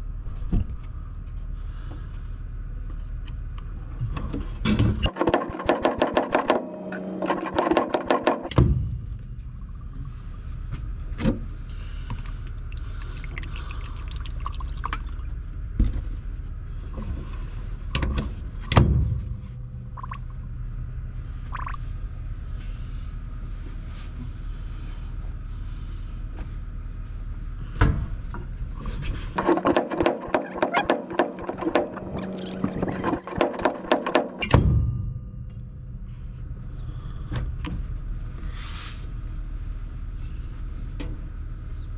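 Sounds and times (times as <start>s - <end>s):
rapid clicking and rattling: 5.0s - 8.6s, 29.4s - 34.6s.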